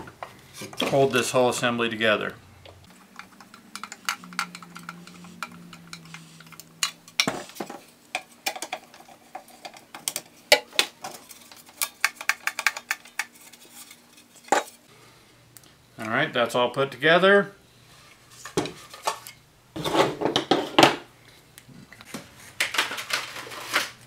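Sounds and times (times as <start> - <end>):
clicks and clinks of parts: 2.9 - 14.8.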